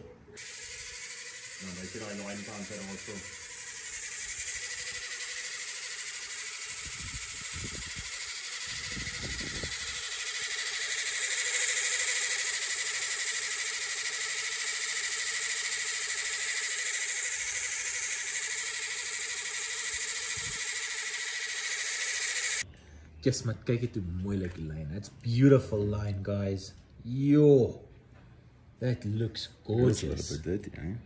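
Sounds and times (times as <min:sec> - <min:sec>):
fishing line whirring off a reel: 0:00.4 - 0:22.7.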